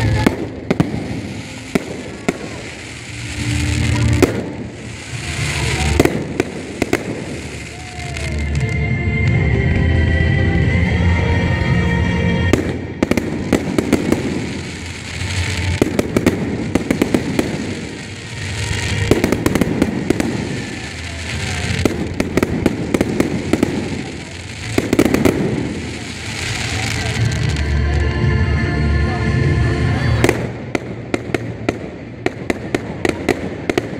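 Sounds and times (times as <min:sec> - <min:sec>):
fireworks crackling: 0:00.0 - 0:33.9
music playing: 0:00.0 - 0:33.9.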